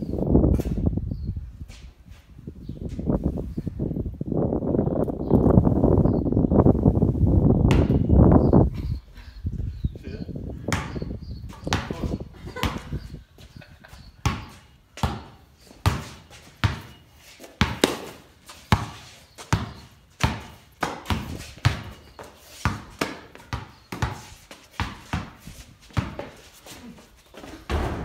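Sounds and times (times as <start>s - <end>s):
basketball bouncing with echo: 14.2s - 17.0s, 17.6s - 22.0s, 27.7s - 28.0s.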